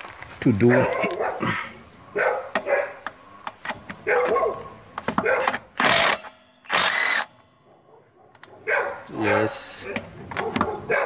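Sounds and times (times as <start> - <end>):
dog barking: 0.6 - 3.0, 4.0 - 5.7, 7.6 - 11.0
impact wrench bursts: 5.0 - 7.4.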